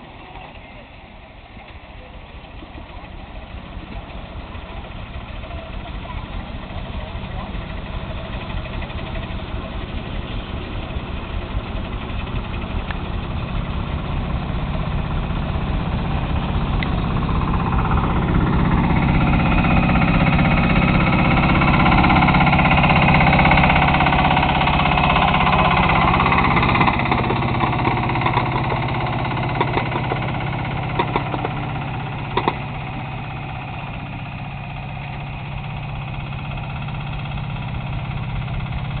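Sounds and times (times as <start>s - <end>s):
miniature locomotive engine: 0.0s - 39.0s
wheels clicking over track points: 0.0s - 39.0s.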